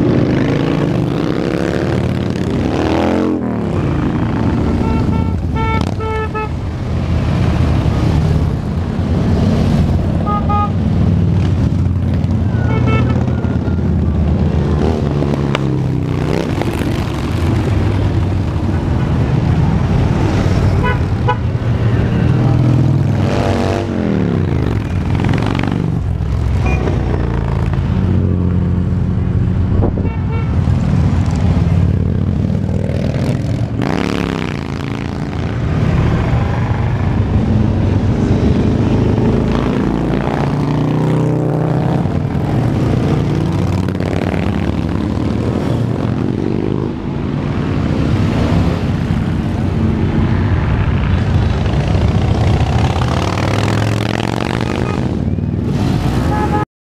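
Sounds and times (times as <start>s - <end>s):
motorcycles riding past: 0.0s - 56.6s
horn toots: 4.5s - 6.6s, 10.2s - 10.8s, 12.4s - 13.4s, 20.8s - 21.5s, 30.0s - 30.7s, 54.5s - 55.2s, 56.2s - 56.7s.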